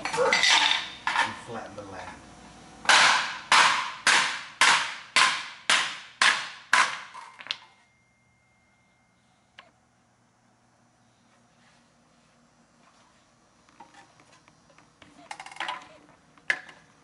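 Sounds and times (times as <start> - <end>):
hammer striking metal lid: 2.9 - 7.1.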